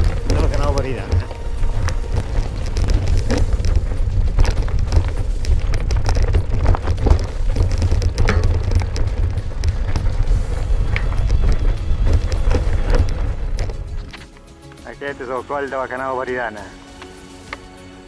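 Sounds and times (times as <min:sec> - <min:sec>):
wind buffeting on microphone: 0:00.0 - 0:14.1
bike tyres rolling over stones: 0:00.0 - 0:17.7.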